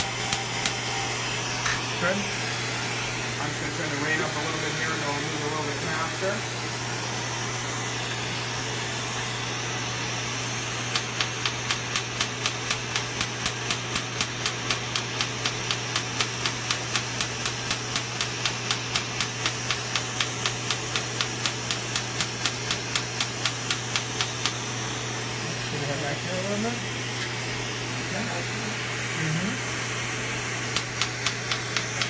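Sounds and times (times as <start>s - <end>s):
laser snapping pops: 10.9s - 24.6s, 30.7s - 32.0s.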